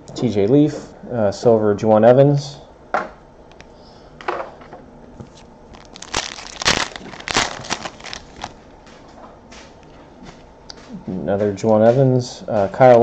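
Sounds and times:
foil wrapper crinkling: 0:05.2 - 0:08.6.

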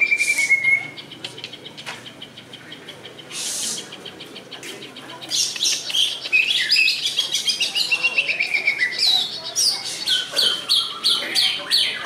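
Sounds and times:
bird singing chirps and whistles: 0:00.0 - 0:01.6, 0:05.3 - 0:12.0.

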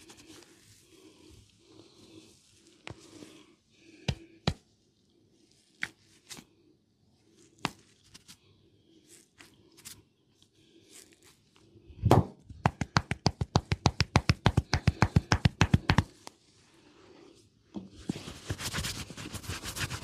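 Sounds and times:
fast run of hand slaps: 0:12.1 - 0:16.1
hands tapping and clicking: 0:12.5 - 0:16.1.

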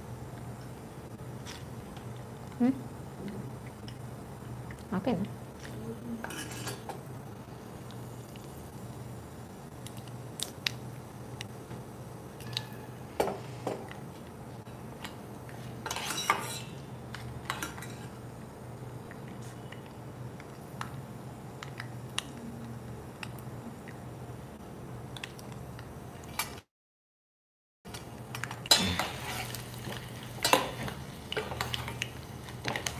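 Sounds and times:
steady low hum: 0:00.0 - 0:26.4
metal spoon scraping steel pan: 0:06.2 - 0:06.8
seeds frying in oil: 0:28.4 - 0:32.9.

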